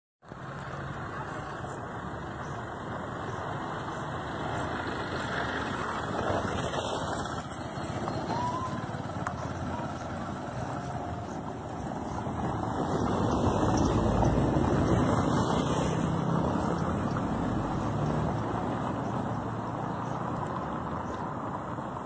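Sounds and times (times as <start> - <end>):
low rumble of distant traffic: 0.2 - 22.0
faint short whistle: 8.0 - 8.9.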